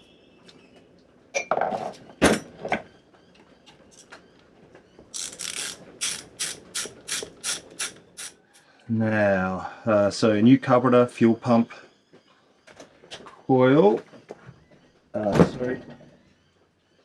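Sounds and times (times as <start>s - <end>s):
ratchet clicking: 5.2s - 8.6s.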